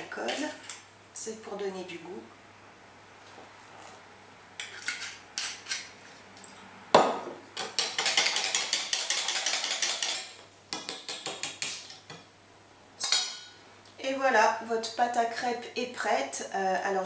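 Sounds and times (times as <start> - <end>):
whisk beating batter in bowl: 7.8 - 10.2.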